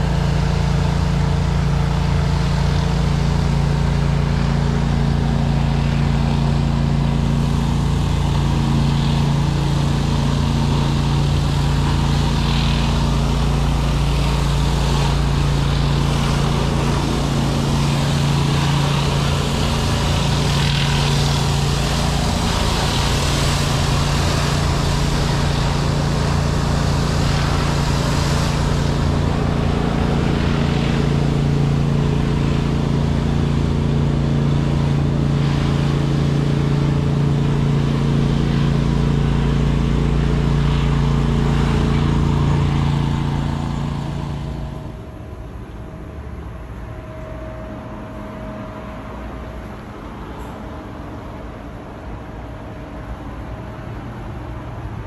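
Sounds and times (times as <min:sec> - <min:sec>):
gas engine droning: 0:00.0 - 0:55.0
water spray hissing: 0:05.1 - 0:33.7.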